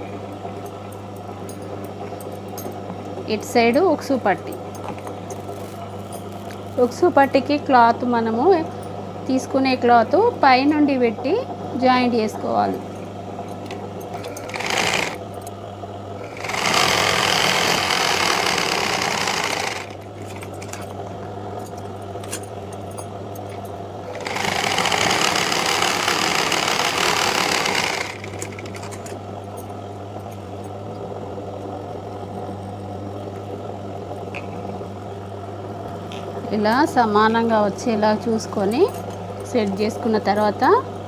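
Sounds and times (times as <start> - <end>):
steady low hum: 0.0 - 41.0
sewing machine stitching: 14.1 - 15.2, 16.2 - 20.8, 24.1 - 29.1.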